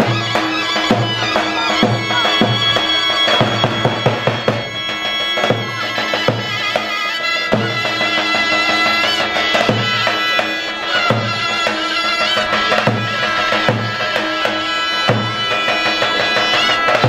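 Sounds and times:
shrill reed wind instrument: 0.0 - 17.0
large drum beating: 11.0 - 17.0.

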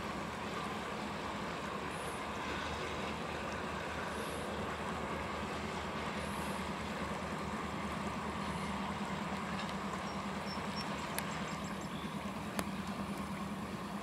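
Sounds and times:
freight train rolling by: 0.0 - 14.0.

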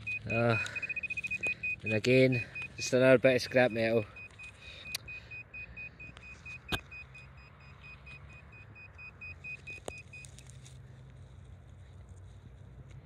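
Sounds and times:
rapid short high beeps: 0.0 - 10.3
person talking: 0.2 - 0.7, 1.8 - 4.1.

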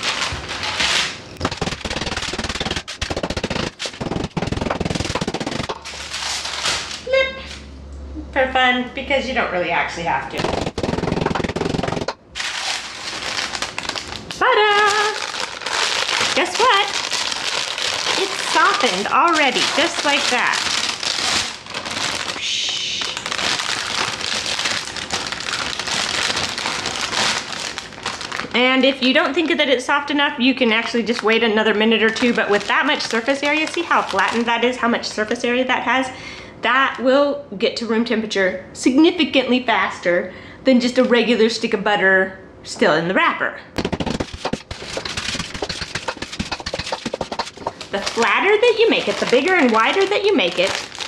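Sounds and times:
parchment paper rustling: 0.0 - 7.1, 10.4 - 29.7, 30.7 - 34.8, 43.8 - 51.0
rolling pin clattering on counter: 43.8 - 48.0.

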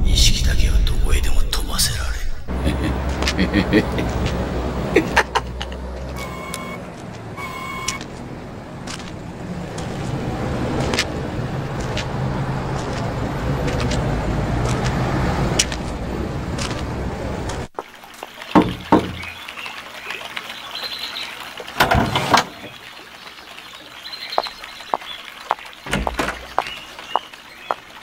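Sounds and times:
traffic din: 2.5 - 28.0
short electronic beeps: 6.2 - 6.8, 7.4 - 8.1.

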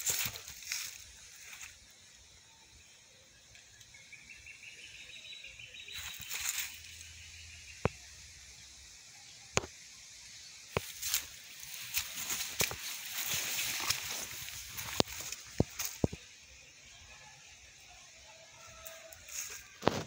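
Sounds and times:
plants rustling: 0.0 - 1.8, 6.0 - 7.0, 10.7 - 16.3.

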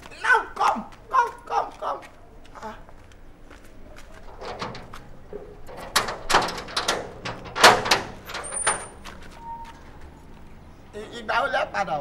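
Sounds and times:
gate knocking and rattling: 4.2 - 9.4.

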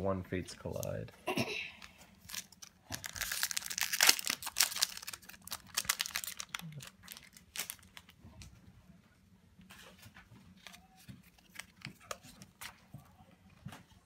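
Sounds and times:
foil wrapper crinkling: 2.1 - 8.2.

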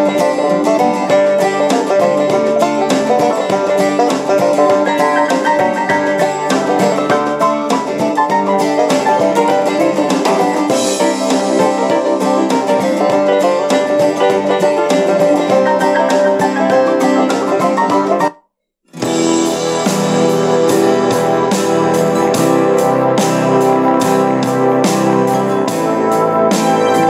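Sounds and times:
plucked-string music on radio: 0.0 - 18.3.

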